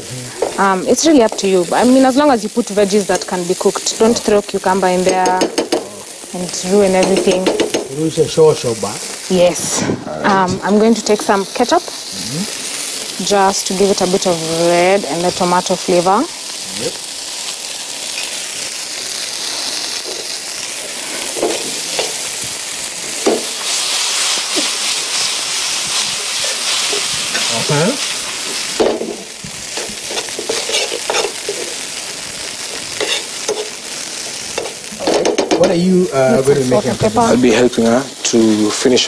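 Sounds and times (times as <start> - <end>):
vegetables sizzling in frying pan: 0.0 - 39.0
utensil scraping pan: 29.7 - 31.8, 32.7 - 33.8.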